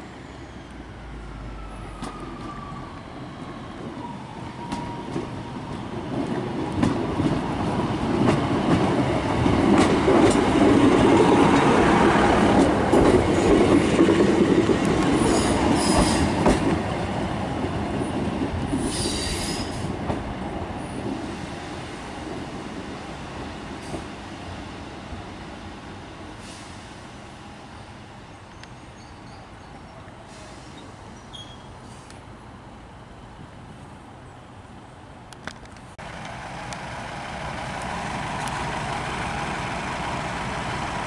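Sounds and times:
train running past: 0:00.0 - 0:31.2, 0:36.0 - 0:41.0
high wheel squeals: 0:30.4 - 0:32.0.

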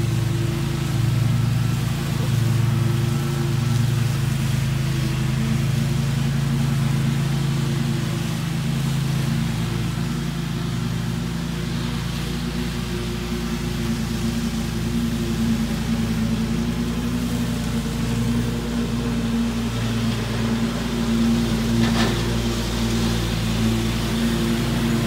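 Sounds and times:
lawn mower cutting grass: 0:00.0 - 0:25.0.

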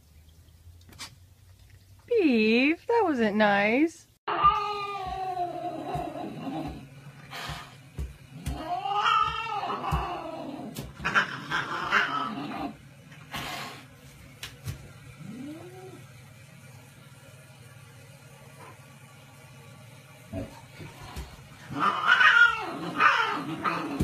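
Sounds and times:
animal yowls: 0:04.3 - 0:06.8, 0:08.5 - 0:12.8, 0:21.7 - 0:24.0.

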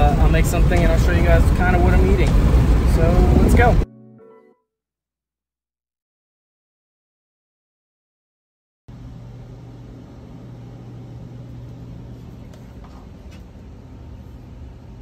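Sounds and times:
appliance fan and motor humming: 0:00.0 - 0:03.7, 0:08.9 - 0:15.0.

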